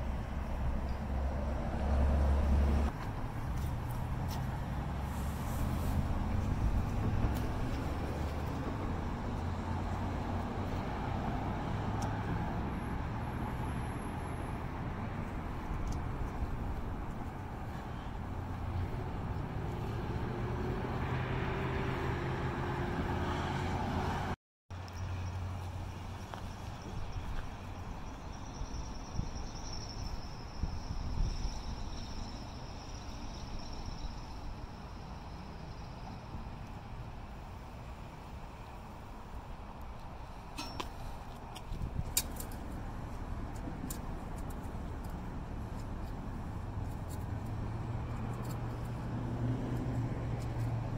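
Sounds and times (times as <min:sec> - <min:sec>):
road traffic rumble: 0:00.0 - 0:50.9
crickets trilling: 0:24.9 - 0:36.6.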